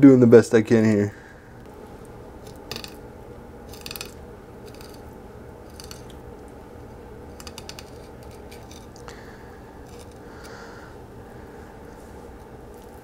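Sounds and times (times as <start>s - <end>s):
low hum: 1.1s - 13.0s
knife crunching over fish bones: 3.7s - 6.2s, 7.3s - 9.1s, 9.8s - 10.6s.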